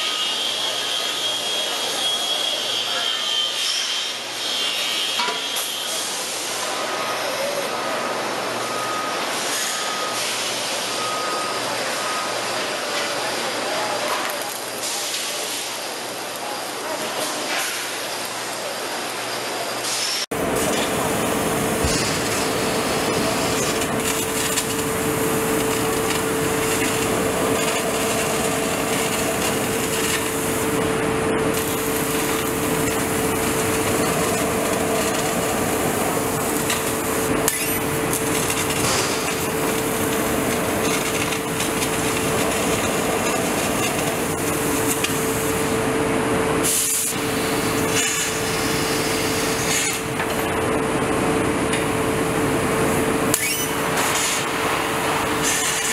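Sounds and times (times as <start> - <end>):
laser cutter hissing with hum: 0.0 - 8.0, 14.7 - 55.9
robotic arc welding hiss: 19.8 - 45.7, 46.6 - 50.1, 53.3 - 55.9.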